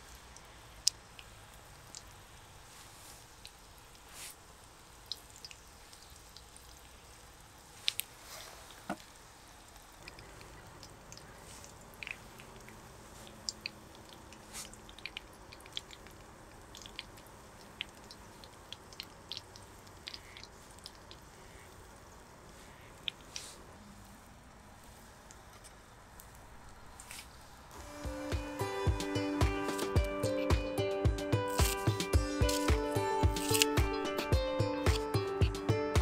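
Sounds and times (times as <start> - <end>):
food sizzling in oil: 1.6 - 8.4.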